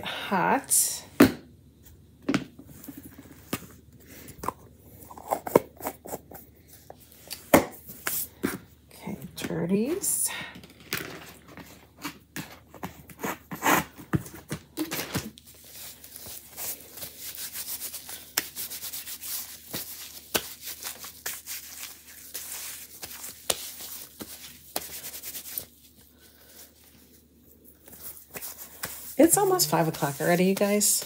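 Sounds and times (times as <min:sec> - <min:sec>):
hands rubbing with wipe: 0:15.8 - 0:31.0.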